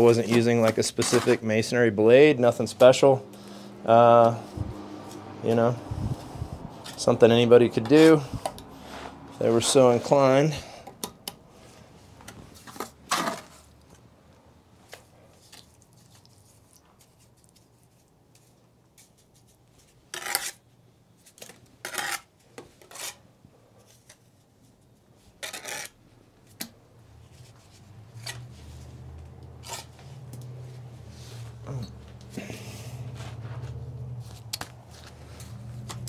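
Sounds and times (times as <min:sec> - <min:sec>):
trowel scraping mortar: 0:00.0 - 0:01.7, 0:20.1 - 0:20.6, 0:21.8 - 0:23.2, 0:25.4 - 0:26.0, 0:29.6 - 0:30.0.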